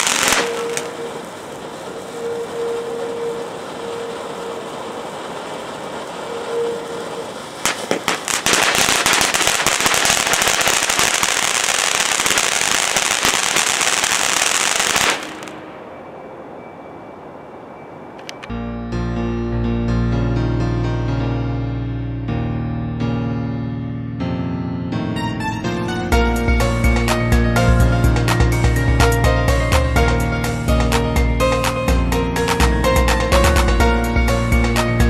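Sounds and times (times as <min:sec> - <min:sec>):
dense crackling spray: 0:00.0 - 0:15.8
firework fountain hissing: 0:00.0 - 0:15.9
firework pops: 0:07.6 - 0:15.6.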